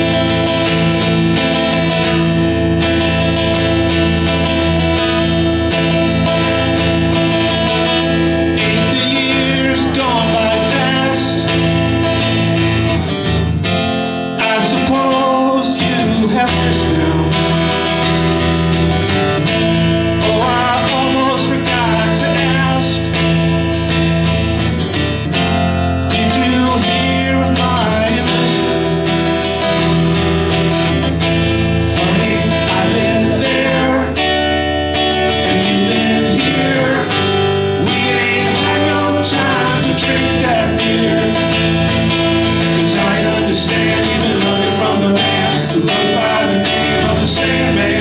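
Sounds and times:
acoustic guitar strumming: 0.0s - 48.0s
man singing: 7.8s - 12.6s, 14.3s - 18.3s, 19.8s - 23.4s, 26.0s - 29.9s, 31.3s - 48.0s.

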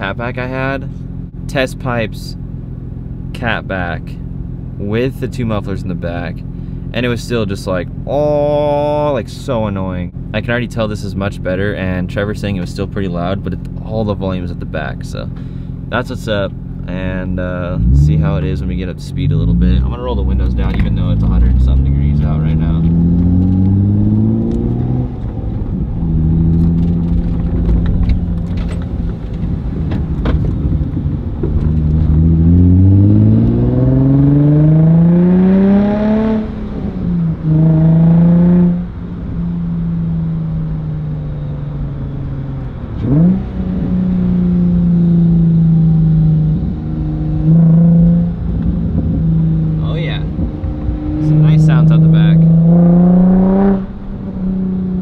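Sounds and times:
car engine revving through gears: 17.6s - 55.0s.

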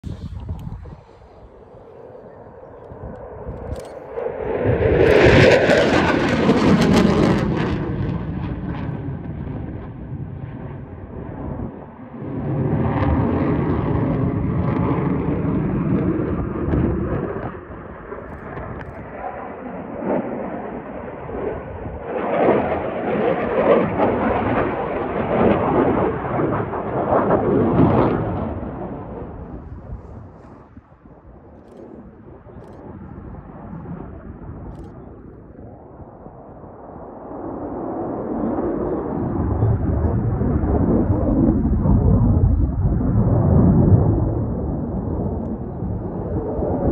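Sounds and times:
jet flying overhead: 0.0s - 46.9s.

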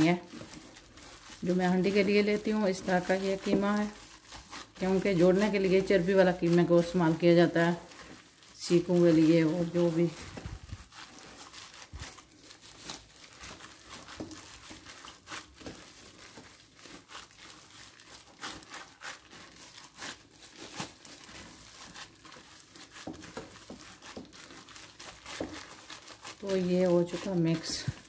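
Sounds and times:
mince being pressed and kneaded: 0.0s - 28.0s
plastic gloves crinkling: 0.0s - 28.0s.

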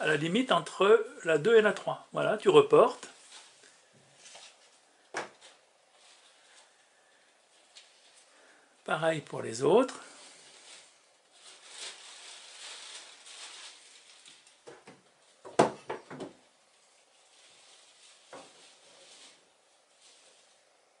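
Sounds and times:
paper rustling on wood: 10.0s - 14.8s, 17.0s - 20.5s.

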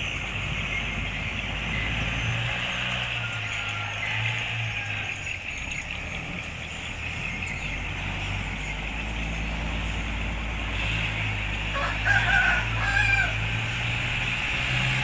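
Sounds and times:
engine running at low revs: 0.0s - 15.0s
rooster crowing: 2.7s - 5.6s, 11.7s - 13.8s.

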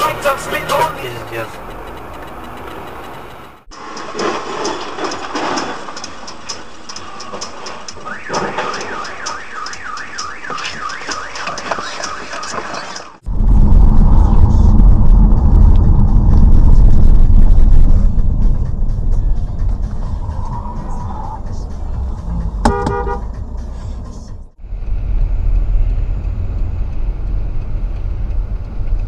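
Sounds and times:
high ticks: 0.0s - 13.1s, 24.6s - 29.0s
warbling electronic alarm: 8.0s - 13.2s
vehicle rumble from inside car: 13.2s - 29.0s.

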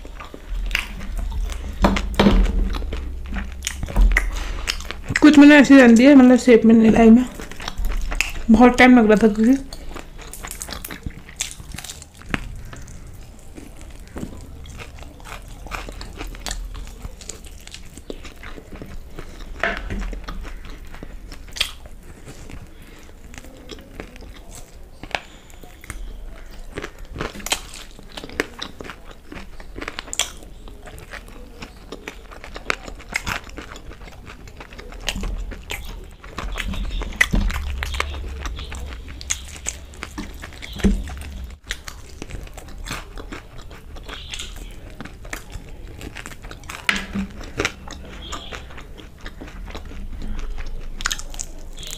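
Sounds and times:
person chewing crunchy food: 0.0s - 51.9s.

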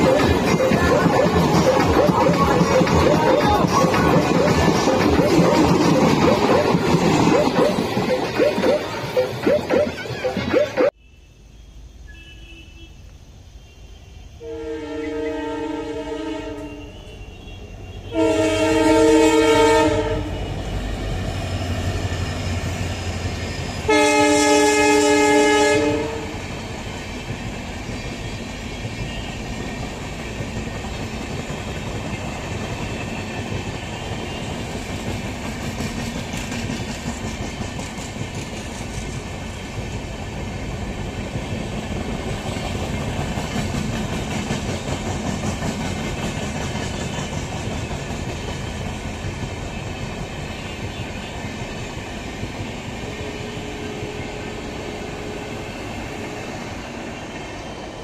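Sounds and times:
wheels clacking over rail joints: 0.0s - 10.8s, 26.4s - 54.0s
train rumbling past: 0.0s - 12.4s, 13.2s - 58.0s
locomotive horn blasts: 13.9s - 20.7s, 23.9s - 26.4s.

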